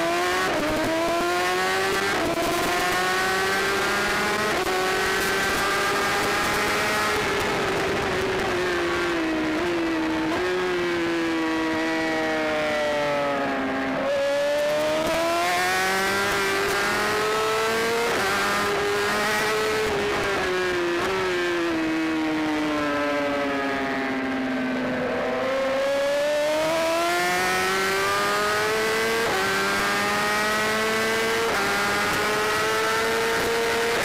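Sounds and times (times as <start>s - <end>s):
motorcycle engine at speed: 0.0s - 34.0s.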